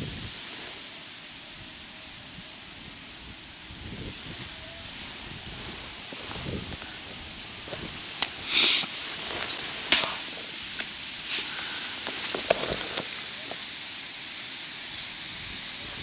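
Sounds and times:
wind on microphone: 0:00.0 - 0:13.7, 0:15.0 - 0:16.0
fishing line swishing hisses: 0:03.5 - 0:15.9.

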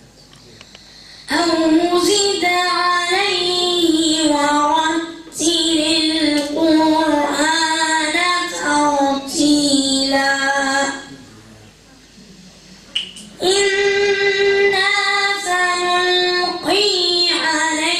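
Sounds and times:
boy breathing: 0:00.7 - 0:01.3
boy chanting recitation: 0:01.0 - 0:11.3, 0:13.4 - 0:17.9.

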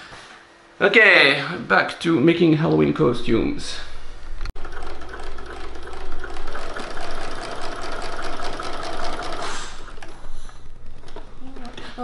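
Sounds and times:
sewing machine stitching: 0:04.6 - 0:10.2.

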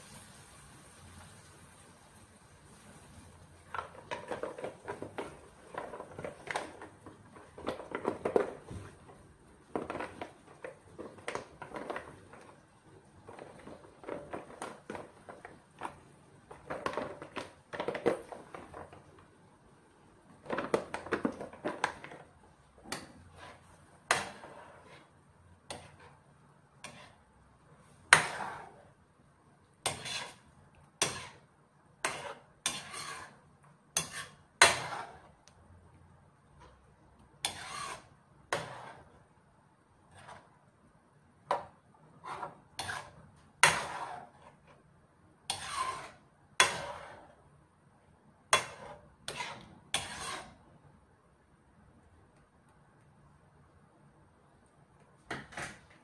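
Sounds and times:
metal ladle scraping a pan: 0:03.6 - 0:08.7, 0:09.6 - 0:12.6, 0:22.9 - 0:27.2, 0:27.9 - 0:29.0, 0:29.8 - 0:35.4, 0:37.4 - 0:39.2, 0:40.0 - 0:40.6, 0:41.6 - 0:47.5, 0:48.5 - 0:50.7.

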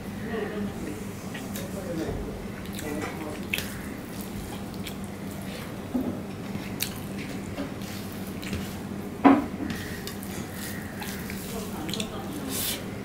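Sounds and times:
hand squishing rice and curry: 0:09.8 - 0:12.8.

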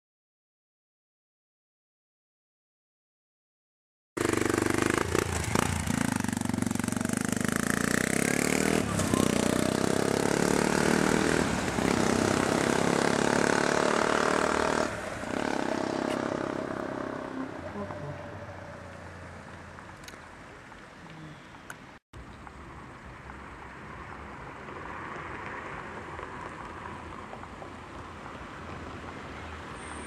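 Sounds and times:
motorcycle engine running: 0:04.2 - 0:17.4.

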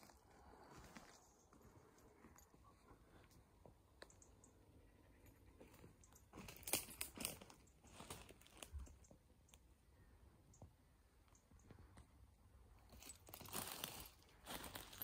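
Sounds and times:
footsteps crunching on brush: 0:05.6 - 0:08.7, 0:12.9 - 0:15.0.

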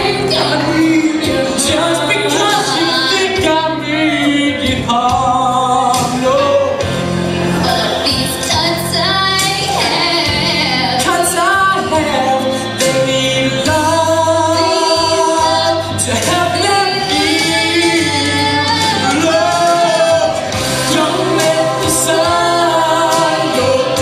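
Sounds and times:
backing music with bass line: 0:00.0 - 0:24.0
person singing: 0:00.0 - 0:24.0.

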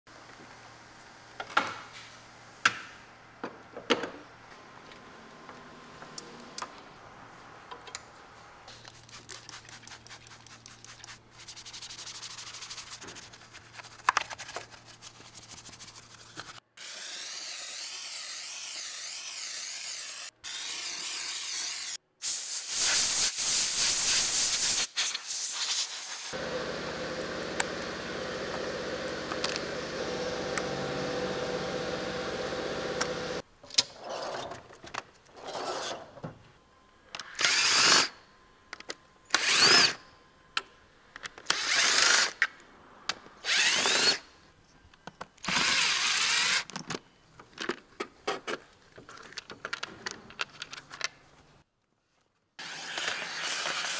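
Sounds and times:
steam hissing and spraying: 0:17.2 - 0:26.4.

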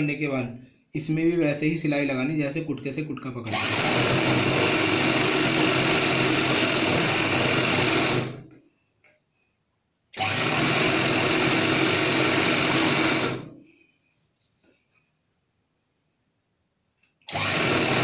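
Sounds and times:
sewing machine stitching: 0:03.5 - 0:08.4, 0:10.2 - 0:13.5, 0:17.3 - 0:18.0.

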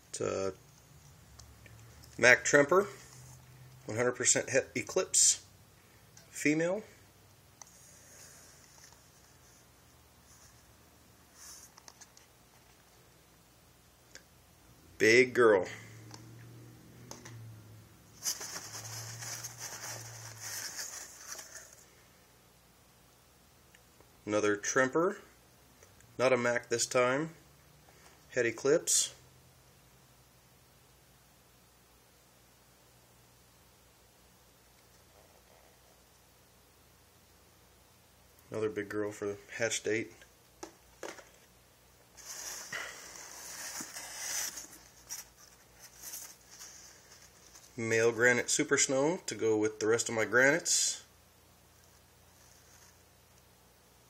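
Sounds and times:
paper and plastic rustling: 0:18.2 - 0:21.9, 0:42.2 - 0:47.8.

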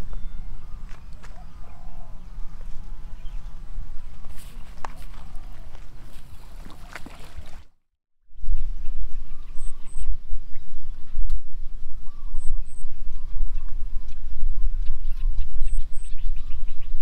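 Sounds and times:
wind buffeting microphone: 0:08.4 - 0:17.0.

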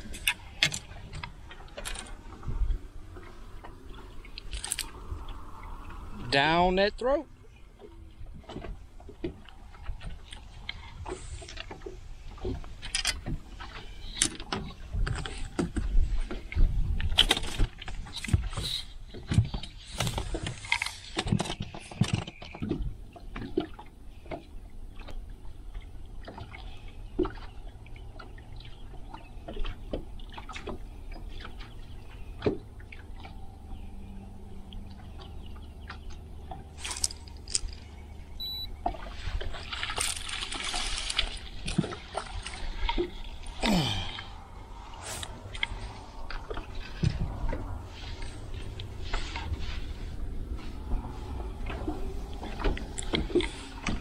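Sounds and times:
water splashing: 0:34.2 - 0:54.0.

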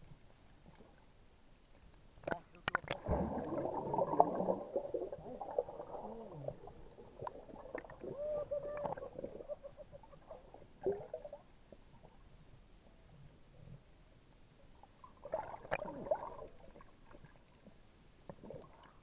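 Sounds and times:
underwater sloshing and gurgling: 0:00.0 - 0:19.0
air bubbles streaming: 0:02.7 - 0:11.4, 0:15.2 - 0:16.9.

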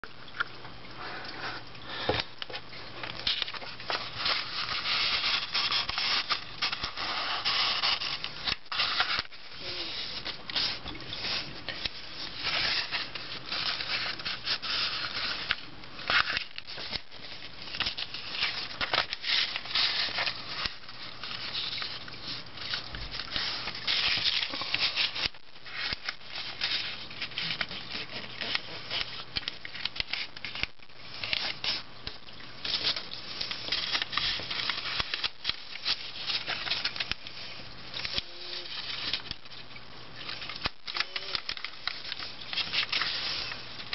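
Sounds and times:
paper rustling and crinkling: 0:01.9 - 0:43.9
fingers rubbing paper creases: 0:04.1 - 0:17.0.

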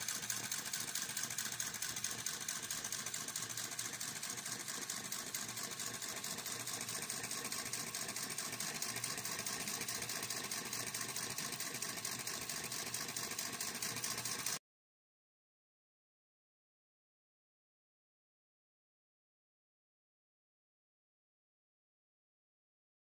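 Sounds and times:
model engine popping and clattering: 0:00.0 - 0:14.6.

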